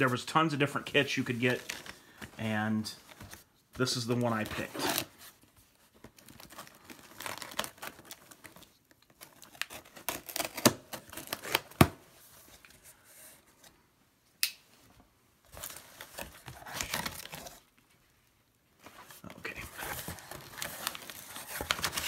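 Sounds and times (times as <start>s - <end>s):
paper packing crinkling: 0.9s - 12.8s, 15.5s - 17.9s, 18.8s - 22.0s.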